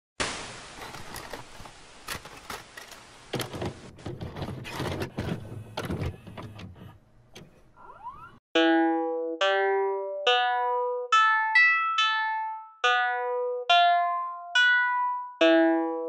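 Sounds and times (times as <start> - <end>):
tape static hiss: 0.2 - 4.0
clicks and crackles: 0.6 - 5.0
keyboard chord: 8.6 - 16.0.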